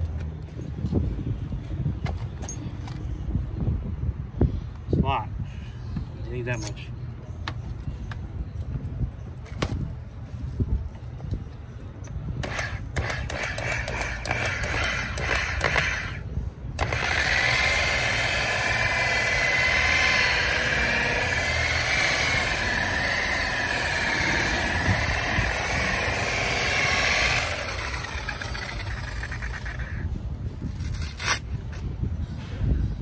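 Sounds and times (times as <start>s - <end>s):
electric polisher motor whine: 16.8s - 30.0s.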